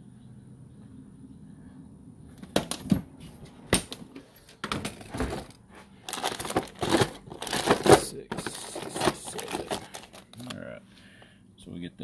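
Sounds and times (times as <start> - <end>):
small bolts rattling in plastic organizer: 6.1 - 10.4.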